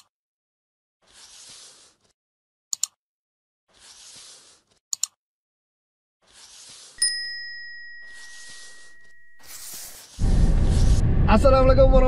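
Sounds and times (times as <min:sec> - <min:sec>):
notification bell ding: 0:07.0 - 0:09.8.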